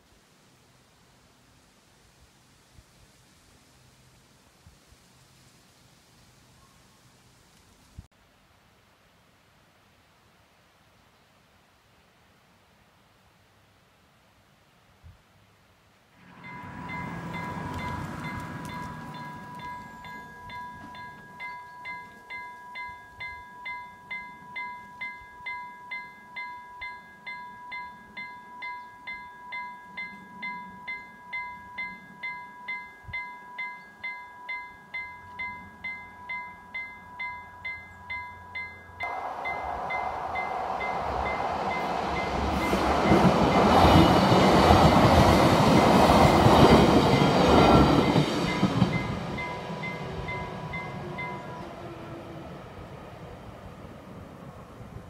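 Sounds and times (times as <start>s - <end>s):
train rushing past: 16.2s - 22.0s, 38.6s - 55.0s
level-crossing warning bell ringing: 16.2s - 52.6s.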